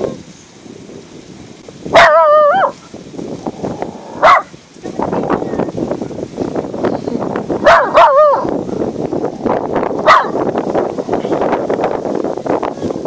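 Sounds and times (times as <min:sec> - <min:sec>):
dog barking: 0:01.9 - 0:02.8, 0:04.2 - 0:04.5, 0:07.6 - 0:08.5, 0:10.0 - 0:10.4.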